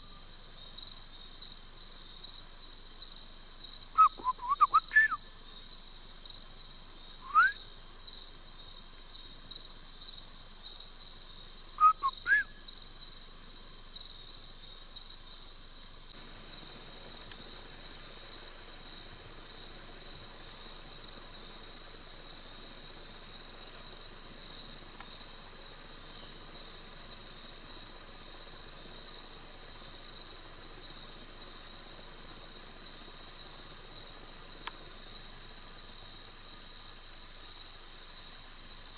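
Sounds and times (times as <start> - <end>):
crickets and insects trilling: 0.0 - 38.9
rising whistled calls: 4.0 - 5.2, 7.2 - 7.6, 11.8 - 12.6.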